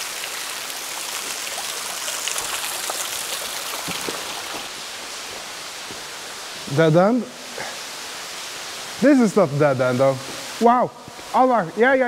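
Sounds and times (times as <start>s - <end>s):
water dripping: 0.0s - 6.7s
running water hiss: 0.0s - 12.0s.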